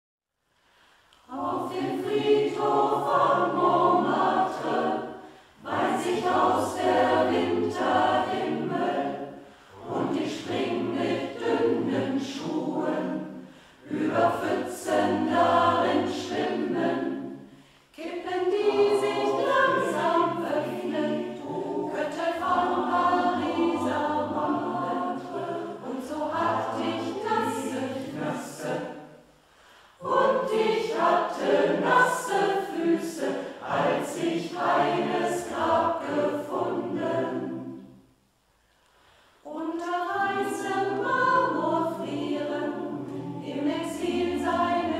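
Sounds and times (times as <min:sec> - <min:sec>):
choir singing slow song: 0:00.5 - 0:44.9.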